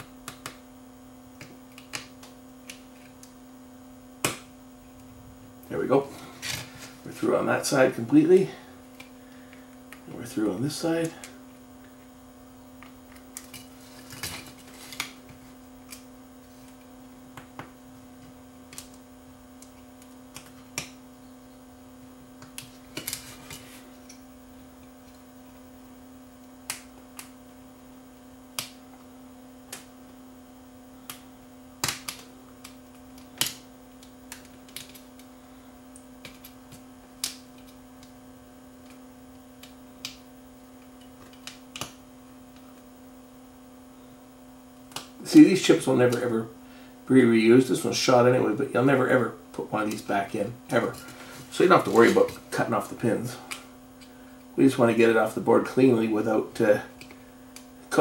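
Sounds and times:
steady electrical hum: 0:00.0 - 0:58.0.

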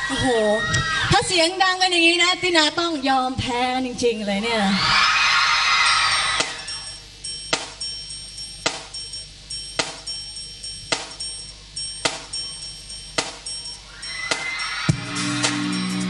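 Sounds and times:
cymbal: 0:06.4 - 0:16.0
drum kit playing a beat: 0:06.4 - 0:16.0.

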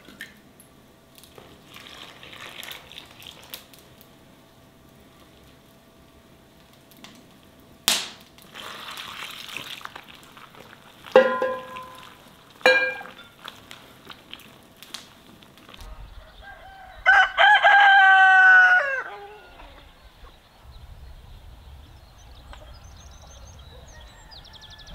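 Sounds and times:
short ringing knocks: 0:11.2 - 0:12.0, 0:12.7 - 0:13.3
rooster crowing: 0:15.9 - 0:20.0, 0:23.7 - 0:24.9.

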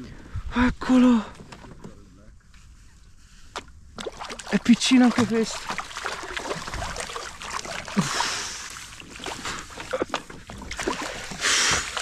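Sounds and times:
fish splashing in water: 0:04.0 - 0:12.0.

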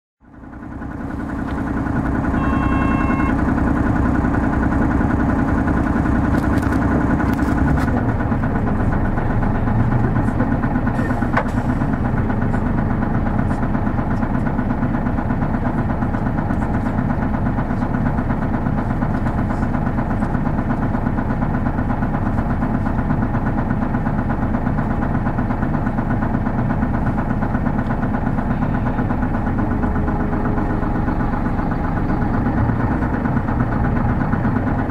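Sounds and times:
bus diesel engine droning: 0:00.2 - 0:34.9
short electronic beep: 0:02.3 - 0:03.4.

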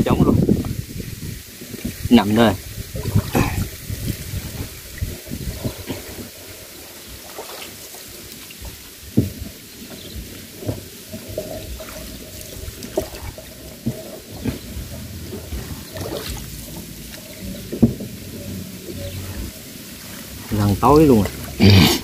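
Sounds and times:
water splashing from paddle: 0:00.1 - 0:22.0
paddle knocking against hull: 0:08.6 - 0:21.6.

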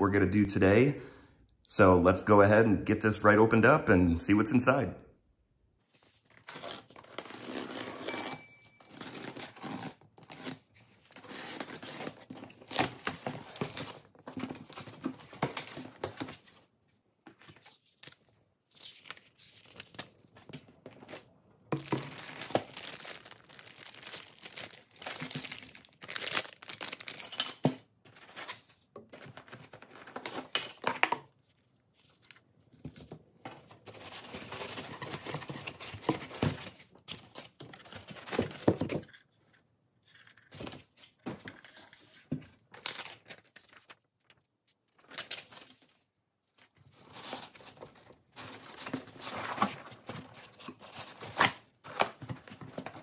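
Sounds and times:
cardboard and tape tearing: 0:06.3 - 0:08.1, 0:08.9 - 0:16.2, 0:21.8 - 0:28.7
plastic bags crinkling: 0:21.8 - 0:27.6.

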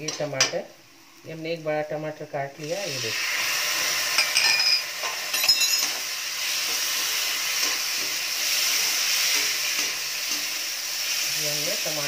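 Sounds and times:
masala sizzling in a pan: 0:00.0 - 0:12.0
glass bowl clinking down: 0:04.2 - 0:06.0.

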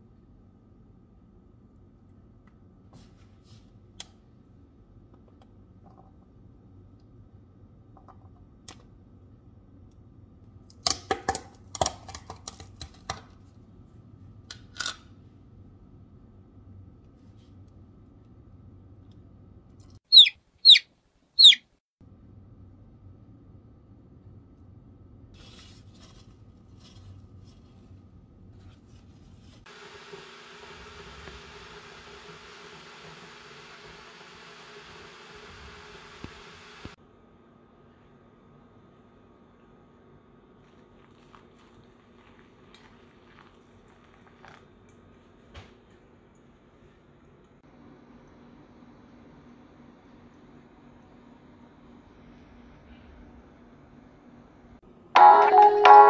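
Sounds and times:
paper towel wiping countertop: 0:25.4 - 0:29.7.

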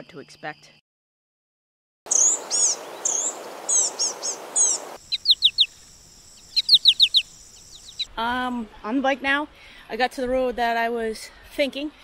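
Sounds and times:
songbird chirps: 0:02.1 - 0:08.2.

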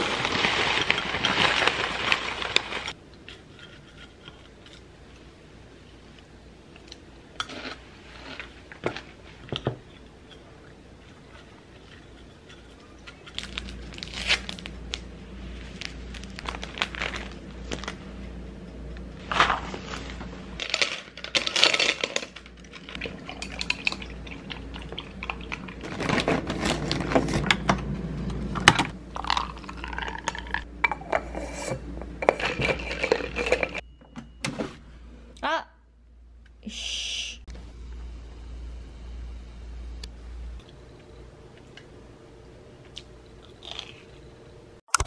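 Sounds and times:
steady low hum: 0:00.0 - 0:45.0
spoon stirring in a cup: 0:30.3 - 0:33.8.

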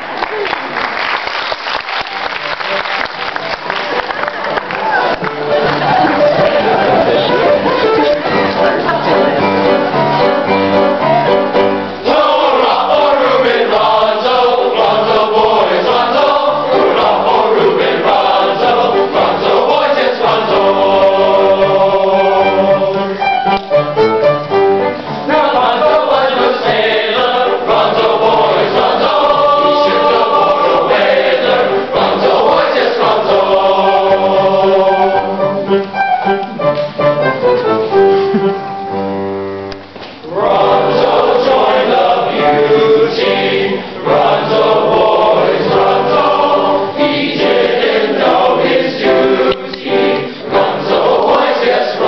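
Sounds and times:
boys' choir singing a sea shanty: 0:05.6 - 0:23.4, 0:25.0 - 0:35.8, 0:40.2 - 0:52.0.

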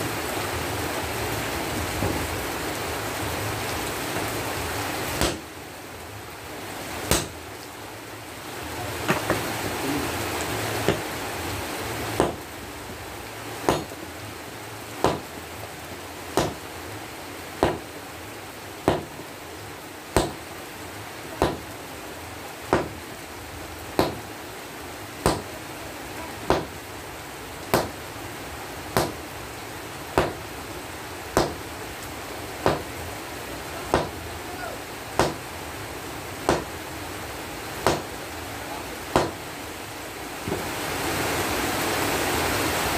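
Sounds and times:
sledgehammer striking hot steel: 0:05.2 - 0:05.5, 0:07.1 - 0:07.4, 0:15.0 - 0:15.3, 0:16.4 - 0:16.6, 0:17.6 - 0:17.8, 0:18.9 - 0:19.2, 0:20.2 - 0:20.4, 0:24.0 - 0:24.2, 0:31.4 - 0:31.6, 0:35.2 - 0:35.4, 0:37.8 - 0:38.1.

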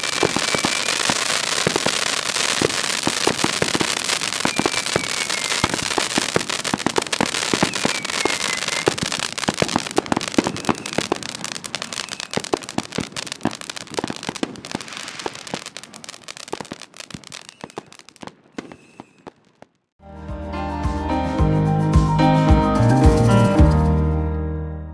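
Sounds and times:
firework hiss: 0:00.0 - 0:19.4
firework fountain crackling: 0:00.0 - 0:19.9
falling whistle: 0:00.4 - 0:01.0, 0:04.4 - 0:05.9, 0:07.5 - 0:09.0, 0:18.6 - 0:19.3.

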